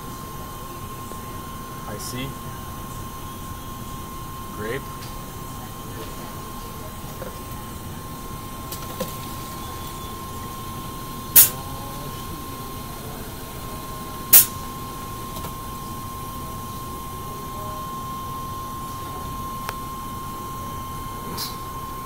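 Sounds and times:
soda fountain dispensing drink: 0:00.0 - 0:17.2
machine hum with high tone: 0:00.0 - 0:22.0.

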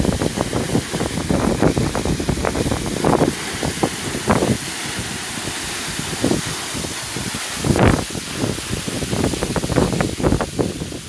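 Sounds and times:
water rushing down spillway: 0:00.0 - 0:11.0
wind buffeting microphone: 0:00.0 - 0:11.0.

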